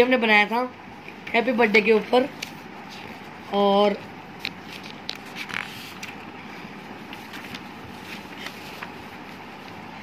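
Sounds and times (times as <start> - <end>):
paper rustling: 4.5 - 6.2, 7.0 - 10.0.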